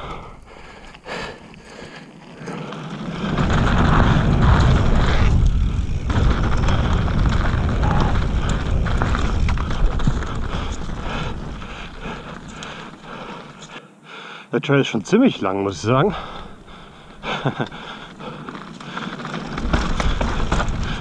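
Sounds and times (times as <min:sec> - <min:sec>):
bike tyres rumbling and rattling: 0:00.0 - 0:13.8, 0:15.7 - 0:21.0
wind rushing over microphone: 0:03.2 - 0:12.4.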